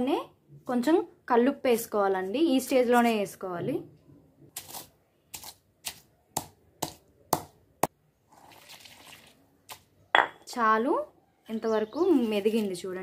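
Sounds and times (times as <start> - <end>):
pestle knocking in mortar: 6.4 - 7.9.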